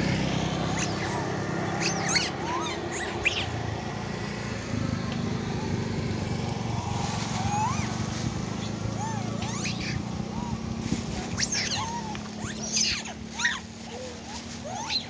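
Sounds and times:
vehicle engine idling: 0.0 - 15.0
monkeys squealing: 0.5 - 3.8, 6.6 - 15.0.

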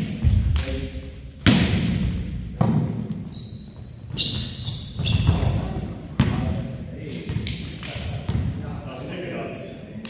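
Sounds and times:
sneakers squeaking on hardwood: 1.2 - 6.5
hands slapping volleyball: 7.0 - 8.4.

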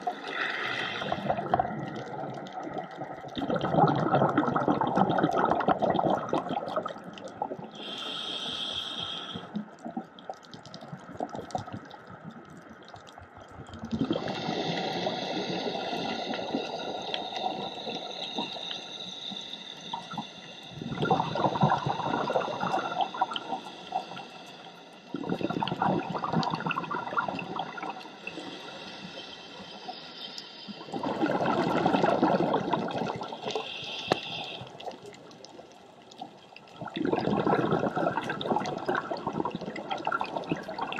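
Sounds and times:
exhaled bubbles rushing: 0.0 - 7.7, 13.6 - 18.7, 19.9 - 28.5, 30.7 - 33.8, 36.7 - 40.9
regulator inhale hiss: 0.2 - 1.6, 7.7 - 9.6, 14.1 - 35.3.

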